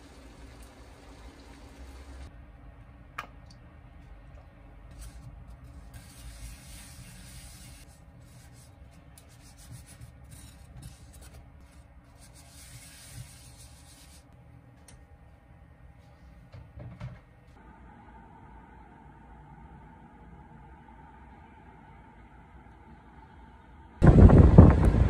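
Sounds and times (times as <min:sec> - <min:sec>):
paper towel rubbing a pan: 0:04.9 - 0:14.3.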